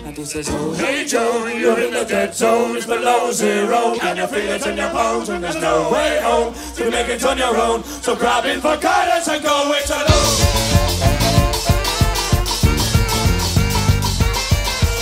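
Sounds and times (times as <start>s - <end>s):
several voices singing together: 0.4s - 11.8s
low steady bass: 10.1s - 14.6s.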